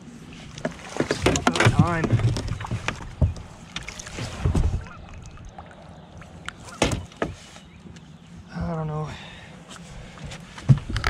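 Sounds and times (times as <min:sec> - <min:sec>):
dull thumps: 0:00.6 - 0:05.1.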